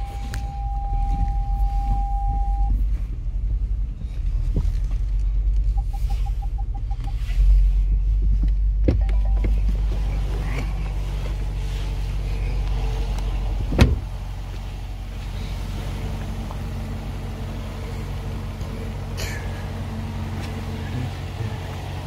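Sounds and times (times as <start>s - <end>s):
car engine idling: 0.0s - 22.0s
car door shutting: 8.8s - 11.5s, 13.5s - 14.2s.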